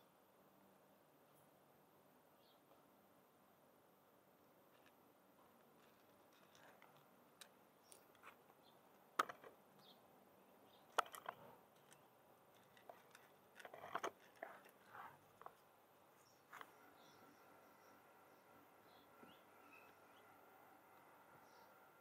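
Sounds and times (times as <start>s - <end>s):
cat crunching dry kibble: 5.7s - 7.5s, 10.9s - 15.6s.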